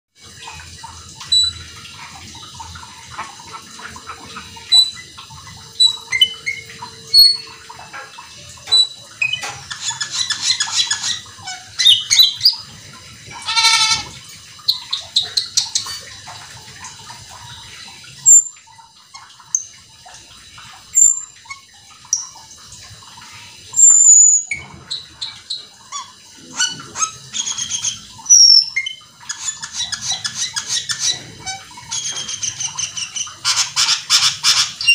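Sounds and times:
starling singing whistles and chirps: 5.8 - 7.5
harsh rattling bird call: 13.3 - 16.0.

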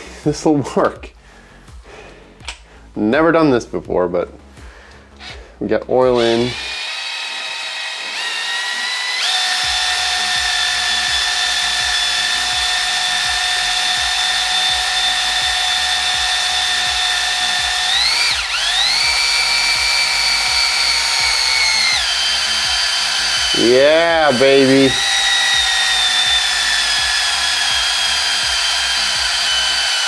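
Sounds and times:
cordless drill motor whine: 6.1 - 30.0.

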